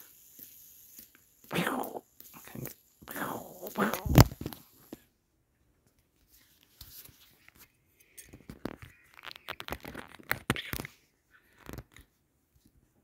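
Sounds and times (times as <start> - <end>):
rustling and scraping on fabric: 6.2 - 7.8.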